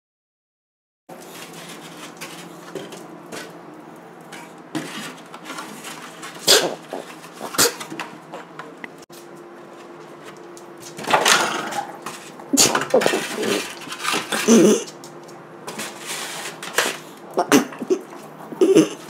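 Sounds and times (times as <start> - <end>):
dog scuffling with foam tray: 1.1 - 3.6, 4.3 - 8.0, 9.6 - 15.0, 15.7 - 17.2.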